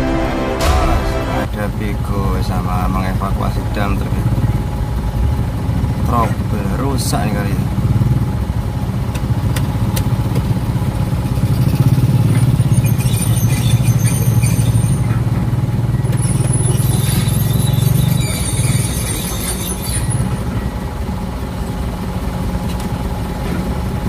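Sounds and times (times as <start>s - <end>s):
excavator diesel engine running: 0.0s - 24.0s
high-pitched squeaks: 11.5s - 15.5s, 16.1s - 20.8s.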